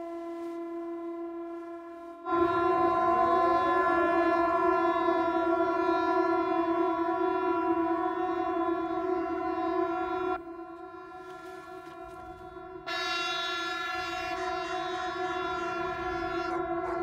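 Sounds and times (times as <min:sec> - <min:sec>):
warning siren wailing: 0:00.0 - 0:17.0.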